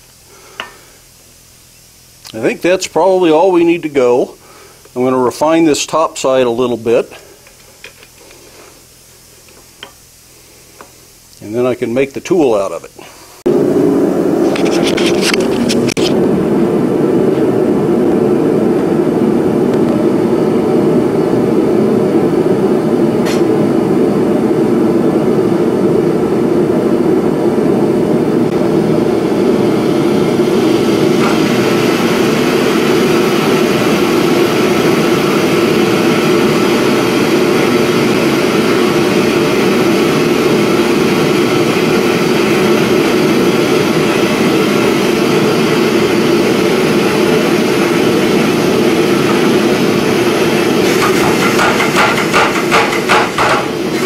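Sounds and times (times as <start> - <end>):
forge equipment roaring: 12.0 - 54.0.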